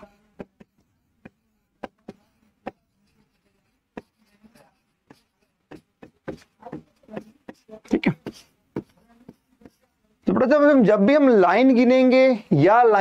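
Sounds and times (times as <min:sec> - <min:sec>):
pen tapping on screen: 0:00.2 - 0:10.0.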